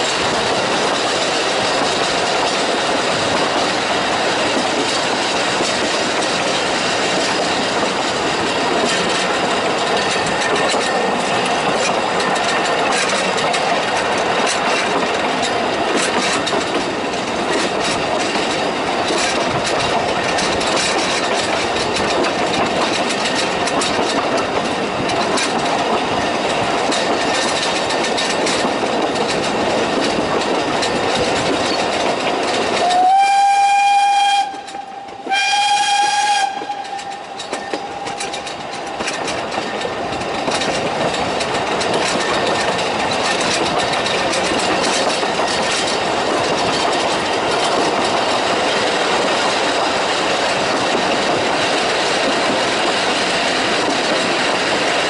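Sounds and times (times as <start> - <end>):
steam train rumbling: 0.0 - 55.0
wheels clicking over rail joints: 0.0 - 55.0
steam whistle blast: 32.8 - 37.2.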